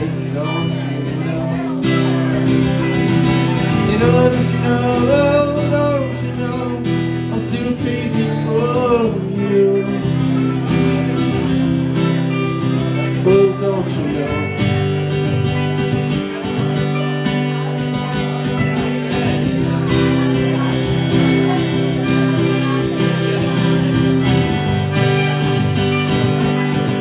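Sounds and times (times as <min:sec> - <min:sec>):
person singing: 0:00.0 - 0:11.5, 0:12.8 - 0:14.7
acoustic guitar strumming: 0:00.0 - 0:27.0
electric guitar: 0:00.0 - 0:27.0.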